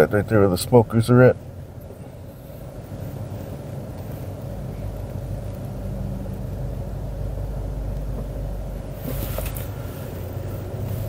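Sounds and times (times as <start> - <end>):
car engine and tyre rumble: 0.0 - 11.0
short hiss: 9.0 - 11.0.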